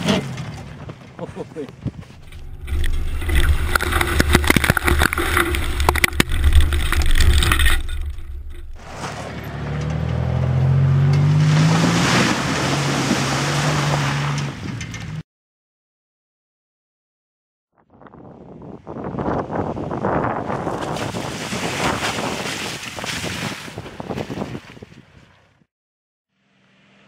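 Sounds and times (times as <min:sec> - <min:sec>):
engine running under load: 0:02.1 - 0:15.2
water splashing: 0:02.2 - 0:09.5, 0:11.2 - 0:14.4
engine revving: 0:02.2 - 0:15.1
mud spattering with sharp clicks: 0:02.3 - 0:08.8.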